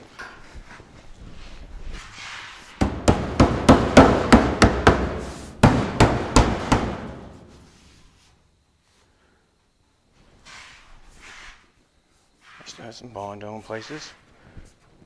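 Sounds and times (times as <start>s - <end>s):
hand smacking metal: 2.8s - 7.4s.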